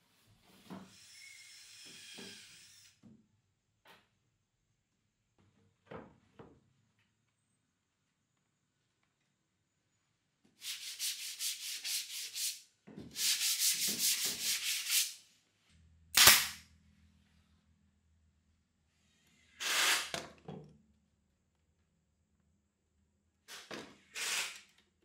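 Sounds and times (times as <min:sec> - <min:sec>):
sanding pad rubbing wood: 0:13.2 - 0:15.2
brad nailer firing: 0:16.2 - 0:16.6, 0:19.6 - 0:20.3.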